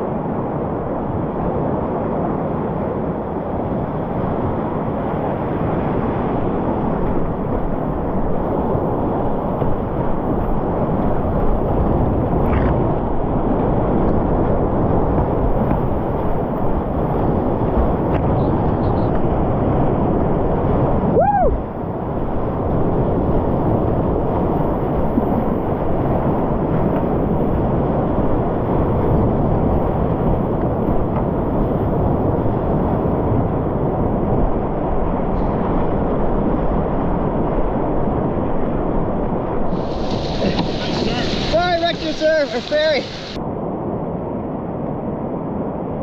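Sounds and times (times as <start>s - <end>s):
whitewater rushing: 39.6s - 43.4s.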